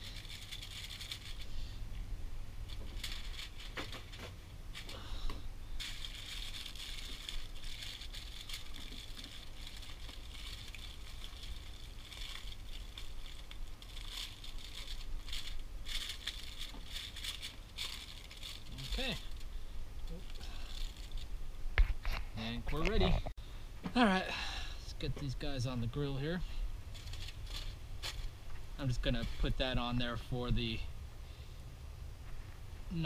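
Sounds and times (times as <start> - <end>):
aluminium foil crinkling: 0.0 - 1.7, 2.6 - 23.0, 26.9 - 30.3.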